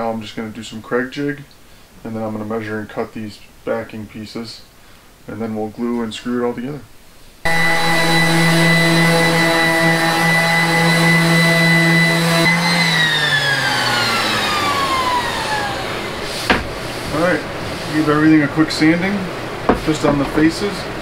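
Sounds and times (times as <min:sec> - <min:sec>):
orbital sander motor whine: 0:07.5 - 0:18.0
short knock: 0:16.5 - 0:16.8, 0:19.7 - 0:20.3.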